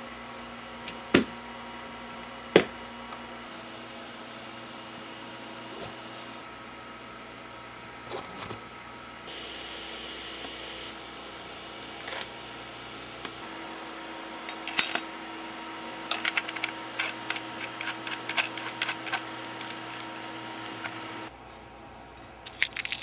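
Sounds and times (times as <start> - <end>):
steady low hum: 9.2 - 11.6, 13.4 - 21.4
small metallic clicks: 16.1 - 21.0.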